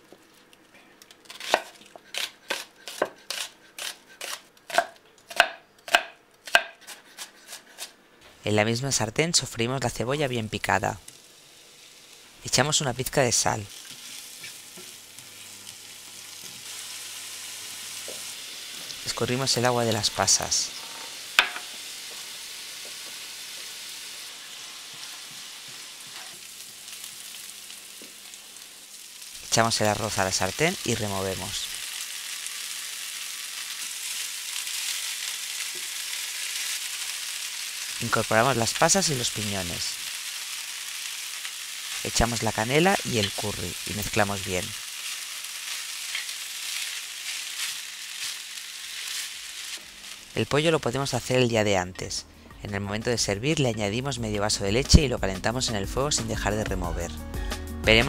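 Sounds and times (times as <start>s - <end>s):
knife slicing onion on wooden board: 1.3s - 7.9s
onion sizzling in a frying pan: 10.6s - 51.4s.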